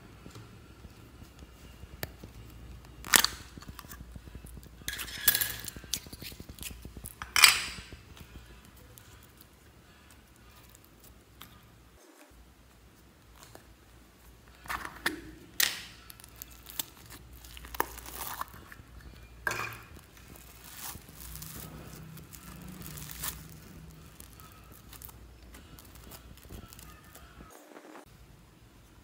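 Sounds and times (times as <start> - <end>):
slime squishing and tearing: 2.0 - 9.4, 15.0 - 27.4.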